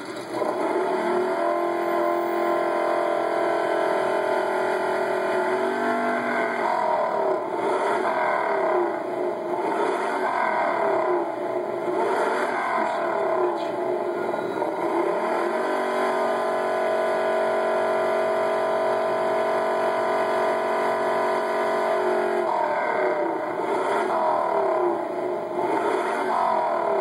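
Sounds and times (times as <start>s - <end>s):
car engine revving: 0.0s - 27.0s.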